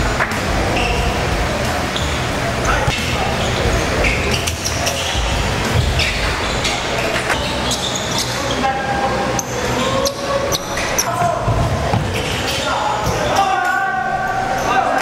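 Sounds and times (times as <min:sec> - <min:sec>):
voices calling out: 0:00.0 - 0:15.0
shoe squeaks: 0:00.7 - 0:11.3, 0:12.0 - 0:13.4.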